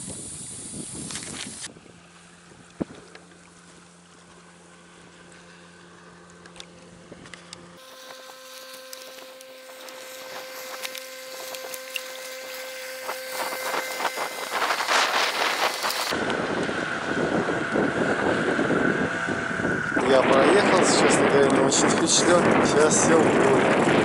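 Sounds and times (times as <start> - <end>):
wind buffeting microphone: 0.0 - 3.1, 9.7 - 24.0
distant outboard motor humming: 1.6 - 24.0.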